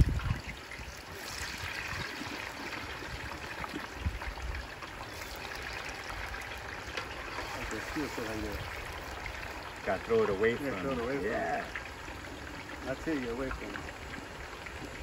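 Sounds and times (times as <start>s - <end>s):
oil sizzling and bubbling: 0.0s - 15.0s.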